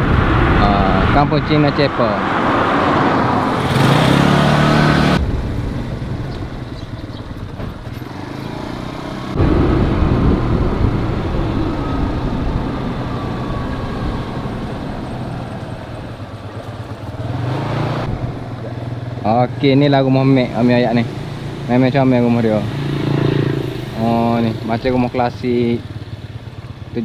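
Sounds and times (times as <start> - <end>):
low rumble: 0.0 - 3.7, 4.5 - 8.1, 9.3 - 17.3
motorcycle engine running: 3.5 - 13.5, 14.4 - 27.0.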